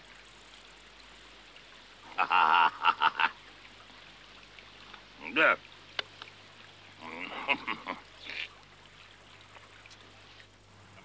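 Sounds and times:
man laughing heartily: 2.1s - 3.3s, 7.2s - 8.0s.

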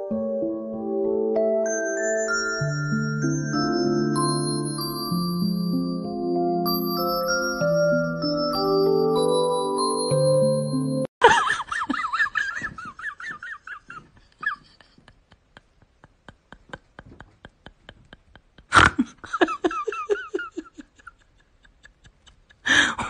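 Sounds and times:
glockenspiel music: 0.0s - 11.1s
person giggling: 11.2s - 23.0s.

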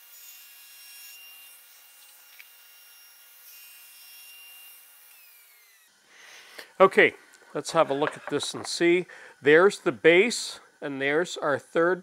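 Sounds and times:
table saw cutting: 0.0s - 5.9s.

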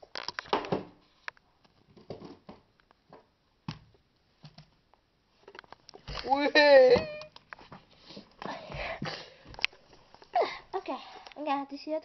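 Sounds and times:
plastic toys tapping and rustling: 0.0s - 3.3s.

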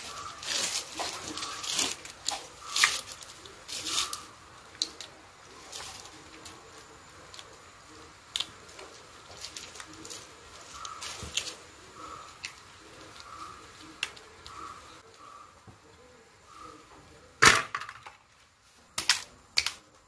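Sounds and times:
crab shell cracking and tearing: 8.3s - 8.6s.

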